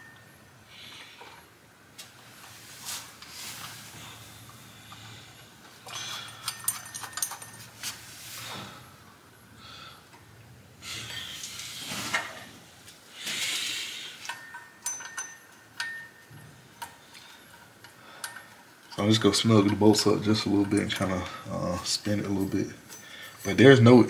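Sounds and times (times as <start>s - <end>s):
soft brushing sounds: 1.9s - 5.4s, 7.6s - 9.0s, 11.2s - 13.8s
light metallic clinks: 5.8s - 8.1s, 14.2s - 24.0s.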